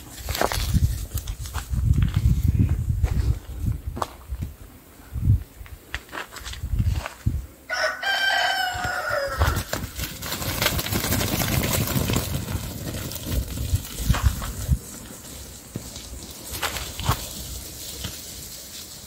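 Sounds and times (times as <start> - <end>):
sheep footfalls and rustling: 0.0 - 4.6, 8.7 - 19.0
rooster crowing: 7.7 - 9.8.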